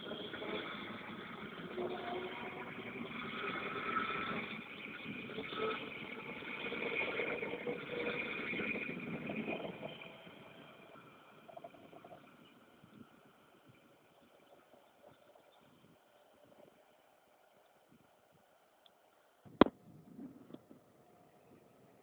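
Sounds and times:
traction motor whine: 0.0 - 13.0.

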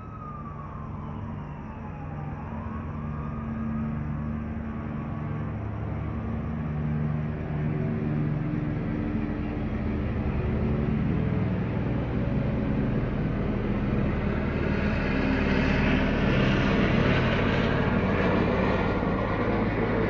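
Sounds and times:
helicopter rotor and engine: 0.0 - 20.0.

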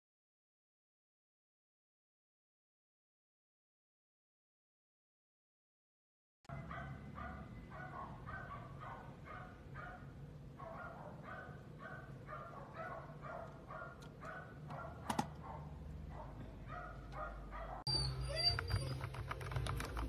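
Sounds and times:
low steady hum: 6.5 - 20.0.

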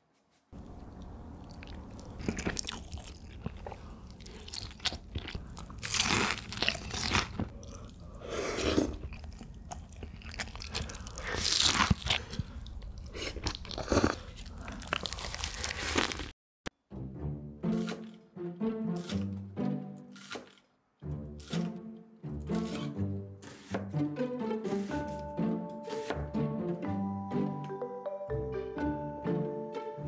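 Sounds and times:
person chewing crunchy food: 0.6 - 16.4.

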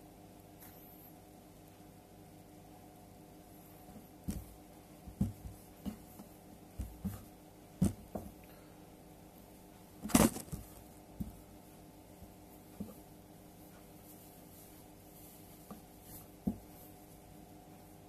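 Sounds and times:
faint steady hum: 0.0 - 18.0
fabric rustling: 9.5 - 18.0.

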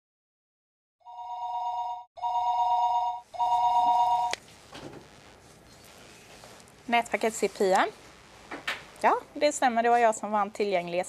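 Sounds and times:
telephone ringing: 1.0 - 4.4
phone answering click: 2.4 - 4.4.

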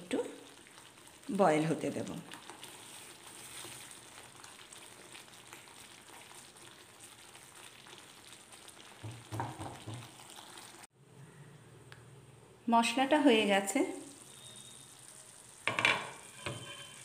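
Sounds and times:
sauce sizzling and bubbling in a pan: 0.0 - 10.9, 13.2 - 17.0
spatula stirring: 2.3 - 9.4, 15.9 - 17.0.

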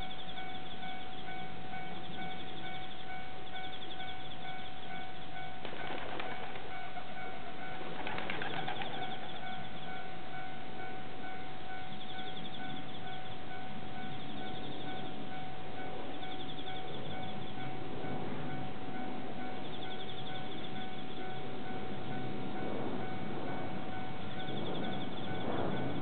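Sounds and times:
level crossing warning bell: 0.0 - 26.0
rustle: 4.7 - 11.7.

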